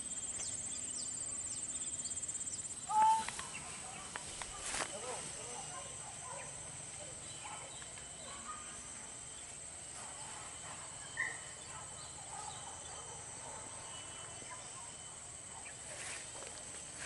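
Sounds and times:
insect chirp: 0.0 - 17.0.

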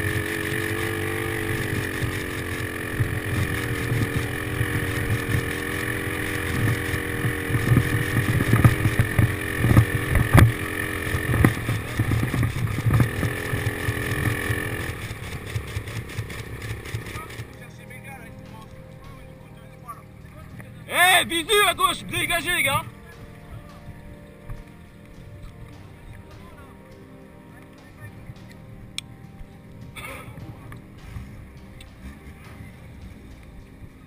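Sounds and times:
engine running: 0.0 - 34.0
sharp clicks and knocks: 0.1 - 17.6.

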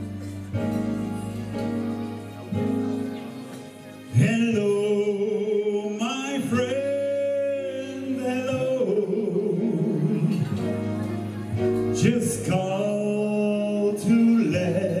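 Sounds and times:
backing music: 0.0 - 15.0
man singing into microphone: 4.1 - 10.9, 11.8 - 15.0.

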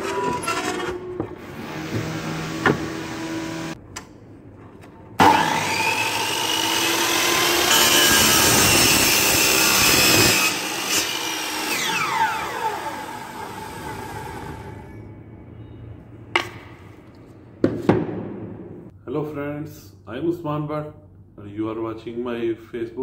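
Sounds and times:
saw blade cutting wood: 5.2 - 14.7
miter saw motor whining: 5.2 - 15.0.

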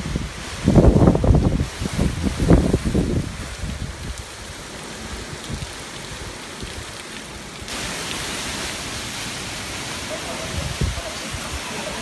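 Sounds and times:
wind rumble on microphone: 0.0 - 7.0, 10.4 - 11.7
heavy rain falling: 0.0 - 12.0.

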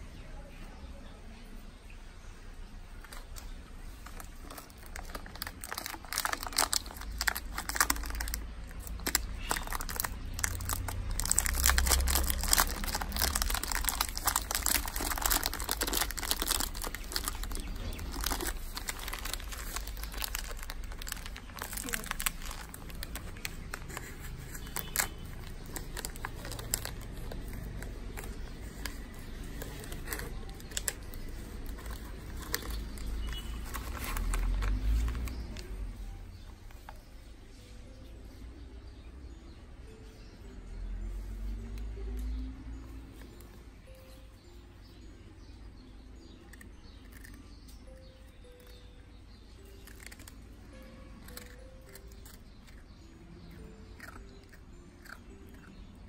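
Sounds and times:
cookie packet crinkling: 3.0 - 35.7, 49.5 - 54.4.

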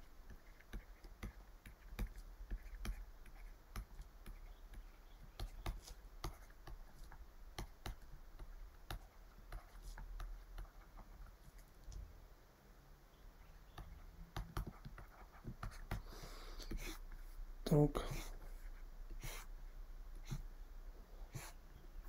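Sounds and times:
stylus tapping on tablet: 13.7 - 16.0.

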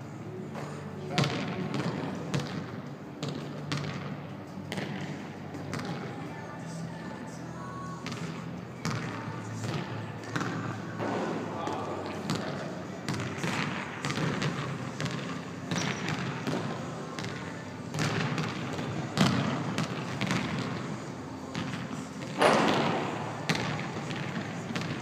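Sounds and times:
ball hitting rim: 13.1 - 20.7, 21.6 - 25.0.

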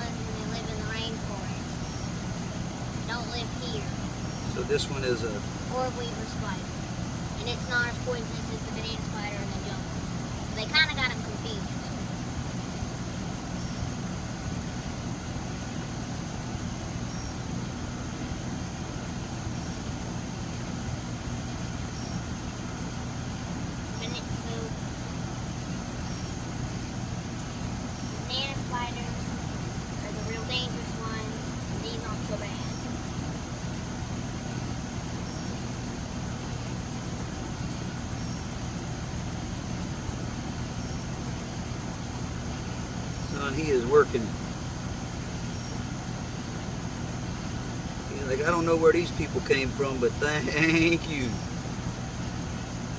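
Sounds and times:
constant rushing noise: 0.0 - 52.9
faint chirps: 0.0 - 52.9
low mechanical hum: 0.0 - 52.9
thin constant high tone: 0.0 - 52.9
faint high chirp: 1.7 - 2.2, 13.5 - 14.0, 16.7 - 17.5.

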